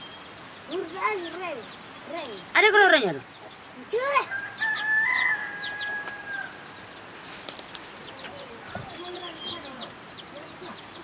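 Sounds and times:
small birds chirping: 0.0 - 11.0
rooster crowing: 4.3 - 6.8.

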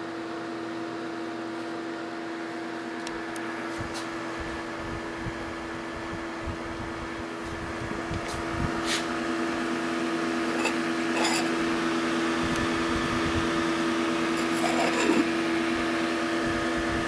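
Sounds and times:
electric cooling fan hum: 0.0 - 17.0
metal cover scraping squeak: 10.4 - 11.6, 14.4 - 15.3.

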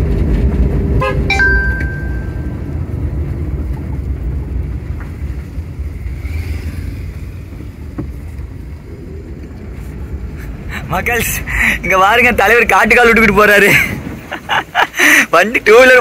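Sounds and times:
car engine and road rumble: 0.0 - 16.0
short tone: 1.0 - 2.7.

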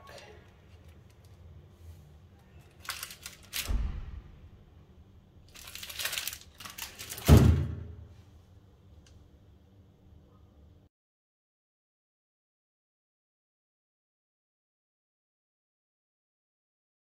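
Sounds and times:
plastic wrapping crinkling: 2.4 - 3.8, 5.4 - 7.6.

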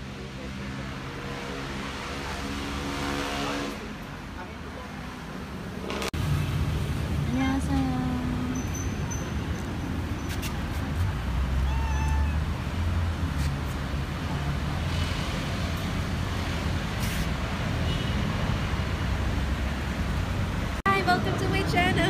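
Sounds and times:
low rumble of road traffic: 0.0 - 22.0
cat meowing: 11.6 - 12.5.

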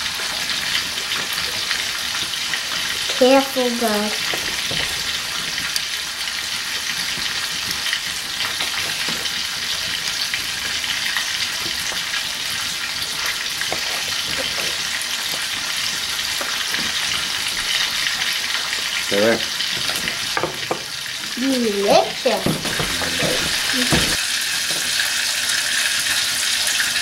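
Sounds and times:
wood fire sizzling and crackling: 0.0 - 27.0
knife tapping cutting board: 22.4 - 24.2.

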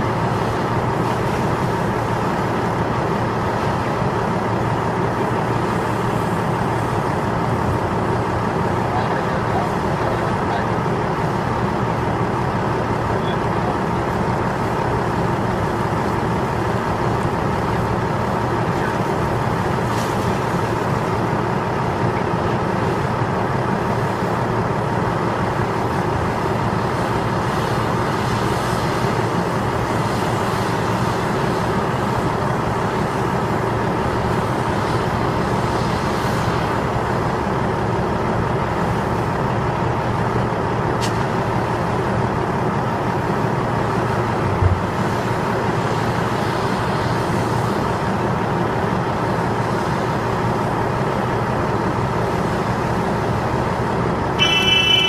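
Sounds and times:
heavy diesel engines droning: 0.0 - 55.0.

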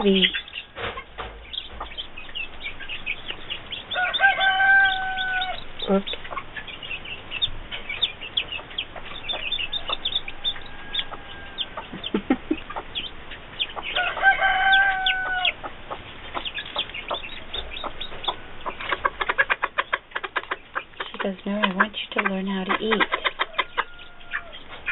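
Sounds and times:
chicks peeping: 0.0 - 24.9
hen clucking: 0.0 - 24.9
rooster crowing: 3.9 - 5.6, 9.7 - 11.9, 13.9 - 15.6, 23.4 - 24.7.

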